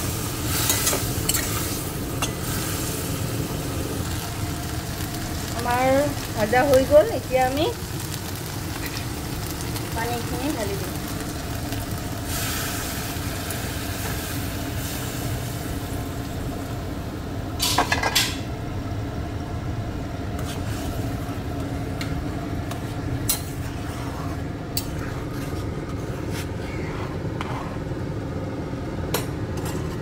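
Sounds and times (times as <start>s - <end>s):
curry frying: 0.0s - 18.4s.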